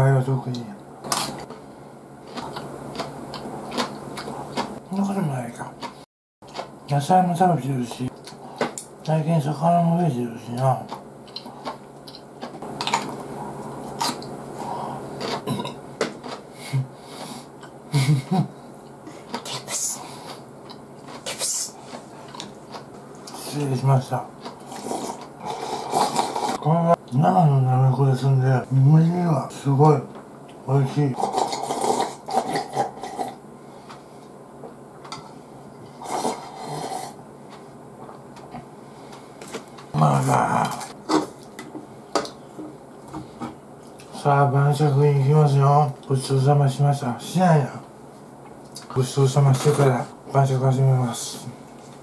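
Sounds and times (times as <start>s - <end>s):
slurping soup: 24.6s - 26.6s.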